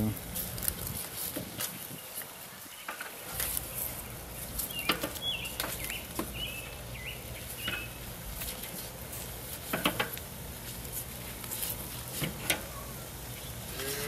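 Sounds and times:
dry husks rustling: 0.0 - 14.0
metal tongs knocking on grill grate: 9.7 - 10.2.

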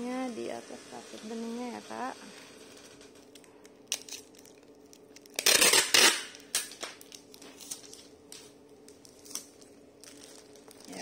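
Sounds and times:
plastic wrap crinkling: 3.2 - 11.0.

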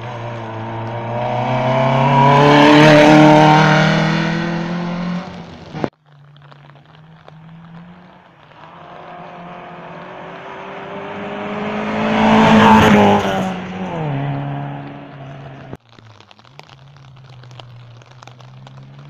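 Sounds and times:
rally car engine: 0.0 - 5.9, 7.2 - 15.8
tyres on loose gravel: 0.0 - 19.0.

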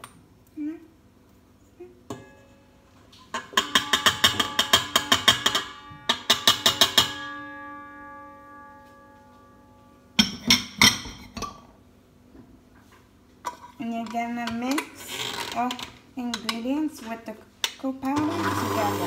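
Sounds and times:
steel bowl ringing: 3.6 - 10.5.

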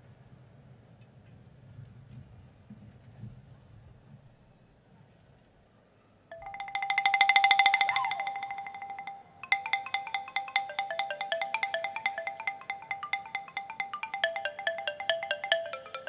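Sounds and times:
wooden xylophone melody: 6.3 - 16.0.

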